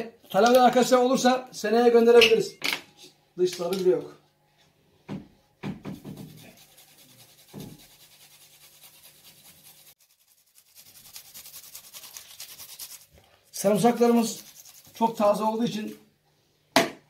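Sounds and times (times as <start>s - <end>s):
garlic grated on metal grater: 6.2s - 15.4s.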